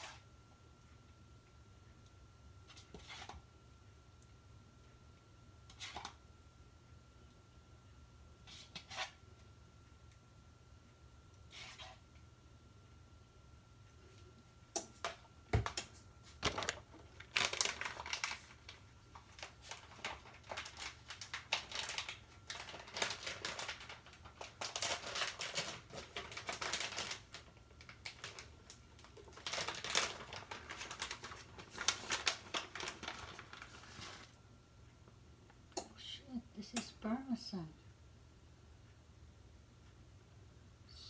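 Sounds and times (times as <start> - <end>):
plastic packaging crinkling: 15.6 - 34.4.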